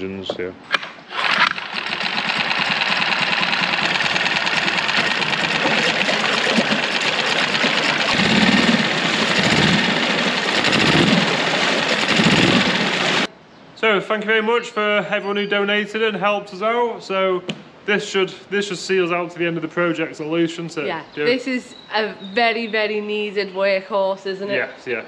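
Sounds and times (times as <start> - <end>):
outboard motor running: 1.1 - 13.3.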